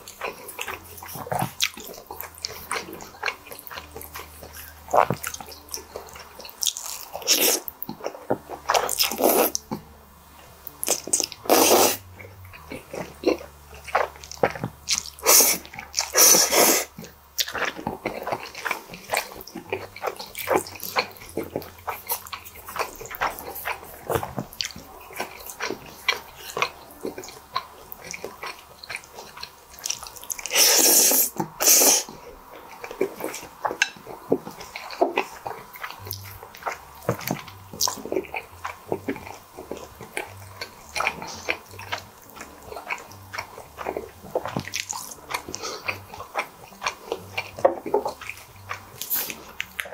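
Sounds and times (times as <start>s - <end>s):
wet chewing and smacking: 0.0s - 49.9s
person slurping noodles: 8.8s - 9.6s, 11.5s - 12.0s, 15.2s - 17.0s, 30.4s - 32.2s.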